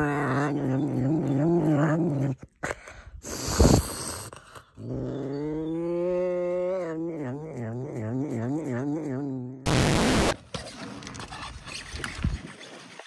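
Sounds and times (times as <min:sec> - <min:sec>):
serval growling: 0:00.0 - 0:02.6, 0:04.6 - 0:09.7.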